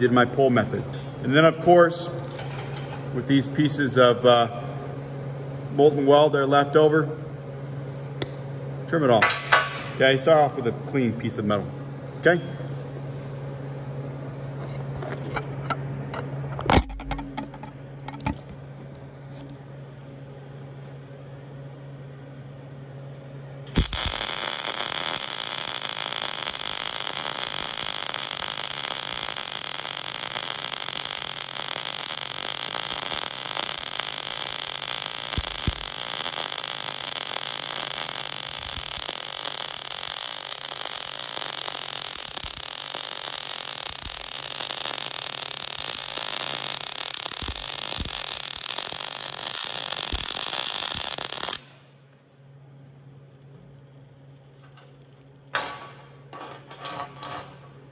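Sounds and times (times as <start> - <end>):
welding arc crackling hiss: 23.7 - 52.0.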